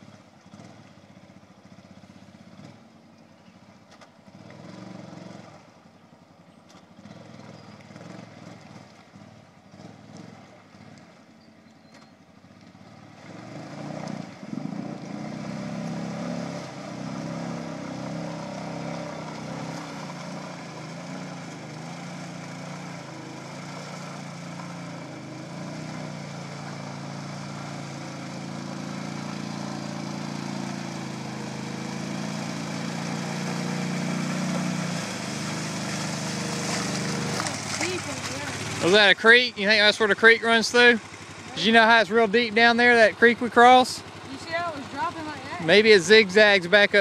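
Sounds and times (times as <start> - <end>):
atv engine running: 0.0 - 47.0.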